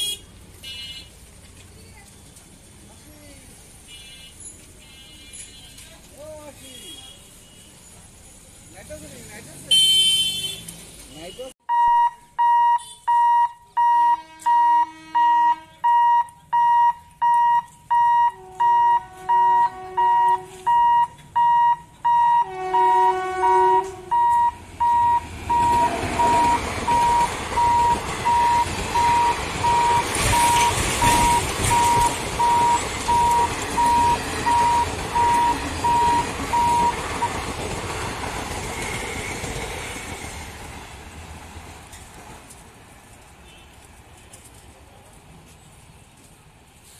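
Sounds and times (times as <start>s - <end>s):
level crossing buzzer beeping: 11.7s - 37.0s
train horn: 14.2s - 15.8s, 18.4s - 20.6s, 22.4s - 24.2s
train rumbling past: 18.4s - 43.1s.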